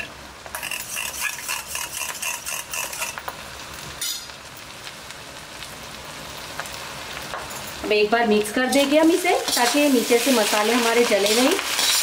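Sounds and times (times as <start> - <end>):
sauce sizzling in hot wok: 0.0 - 12.0.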